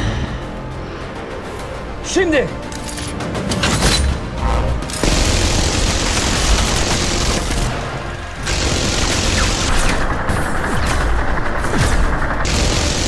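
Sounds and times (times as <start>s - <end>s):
rotary machine gun firing: 5.0s - 13.0s.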